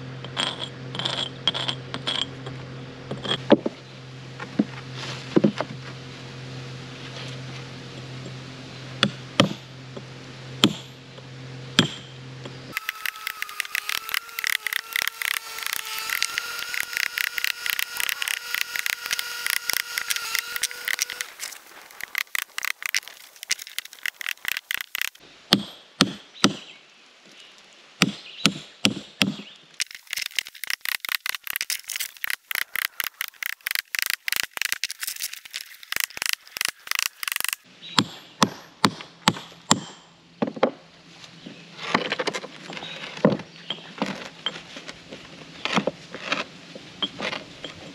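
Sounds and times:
hammer striking chisel on stone: 11.8 - 12.1.

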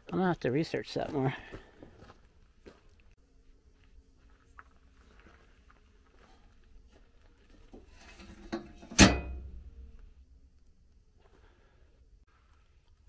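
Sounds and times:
metal toolbox lid clanging: 8.2 - 9.7.

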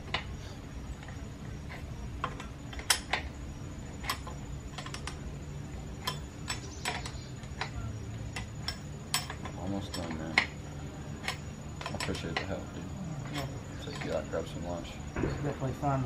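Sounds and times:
faint low hum: 0.0 - 16.0
wrench clicking: 6.0 - 10.5.

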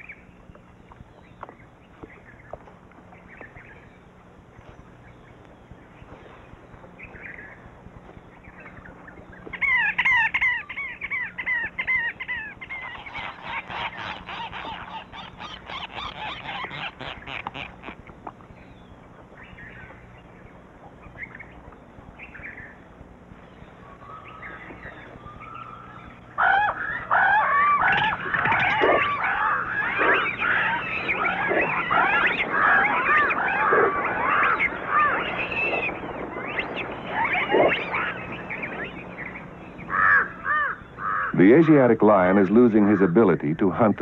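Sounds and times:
chorus of animal calls: 8.3 - 18.0, 18.6 - 44.0.

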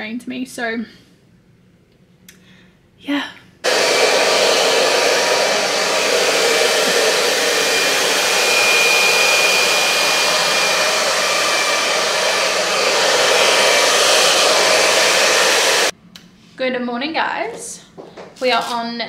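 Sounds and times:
hair dryer running: 3.6 - 15.9.

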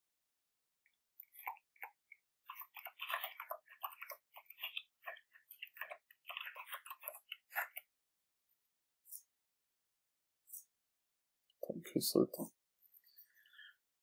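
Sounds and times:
keyboard typing: 1.2 - 7.8.

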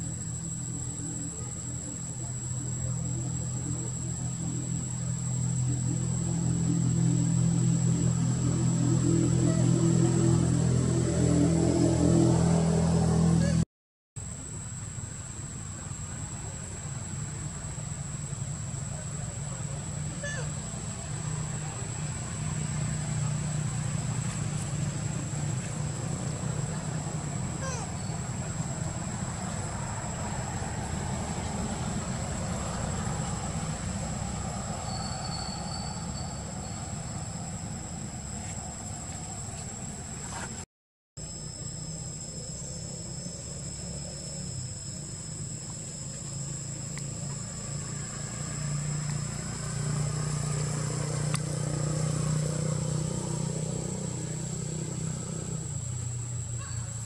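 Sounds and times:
low mechanical drone: 0.0 - 13.6, 16.7 - 40.6, 41.2 - 57.0
thin high tone: 0.0 - 13.6.

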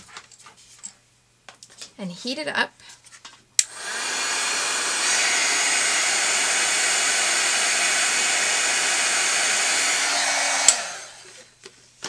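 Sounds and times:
heat tool blowing hot air: 3.6 - 11.4.

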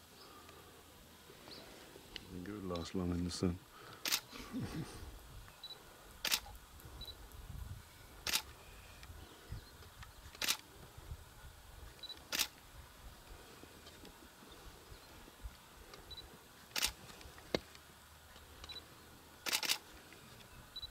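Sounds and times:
camera shutter clicking: 4.0 - 4.3, 6.2 - 6.5, 8.2 - 8.5, 10.4 - 10.6, 12.0 - 12.6, 16.7 - 17.0, 19.4 - 19.8.

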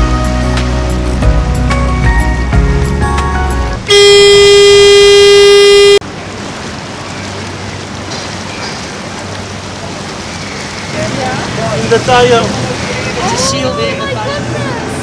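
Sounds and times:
water noise: 0.0 - 15.0
boat horn blast: 3.8 - 6.0.

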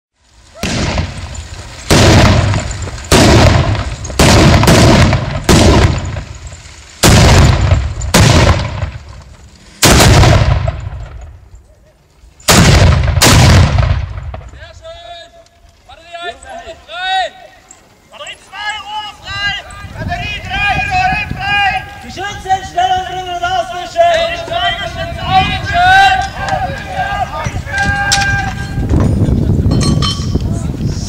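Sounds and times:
small cannons firing: 0.5 - 11.3, 12.4 - 14.6
rumbling echo: 0.6 - 11.4, 12.5 - 14.6.

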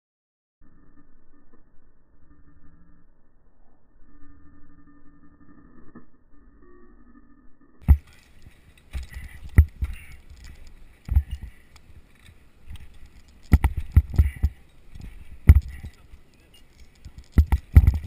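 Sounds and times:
climbing spikes knocking into bark: 7.8 - 18.0.

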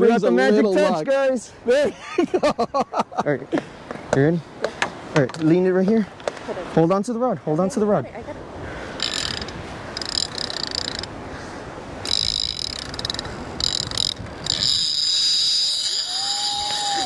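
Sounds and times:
fishing reel drag buzzing: 9.0 - 11.1, 12.0 - 17.0.

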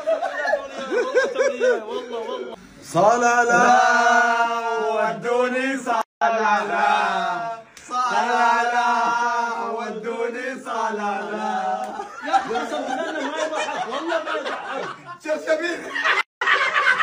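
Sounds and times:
laughter: 0.0 - 2.6, 11.9 - 17.0
excited talk: 10.7 - 16.2.

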